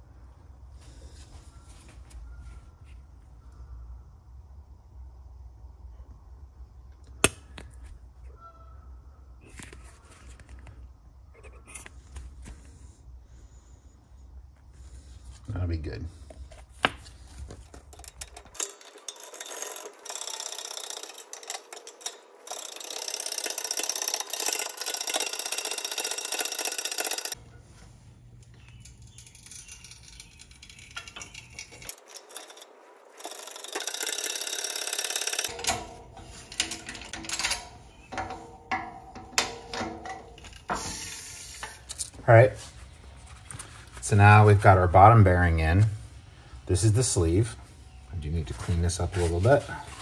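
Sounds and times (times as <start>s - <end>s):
metal clicks and clinks: 17.7s - 27.4s, 28.4s - 40.8s
hydraulic press pumping: 33.2s - 42.1s.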